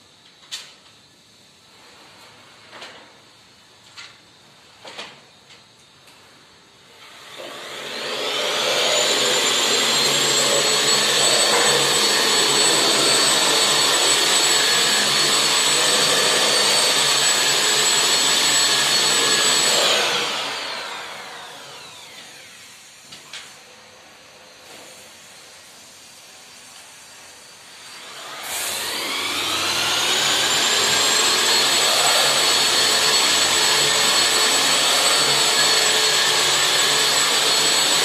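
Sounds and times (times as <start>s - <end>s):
electric sander whining: 7.6s - 22.6s, 28.0s - 38.0s.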